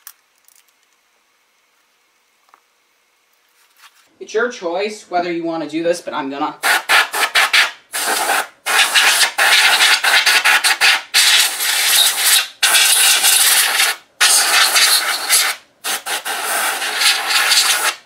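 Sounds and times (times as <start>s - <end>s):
compressed air spraying: 6.6s - 18.0s.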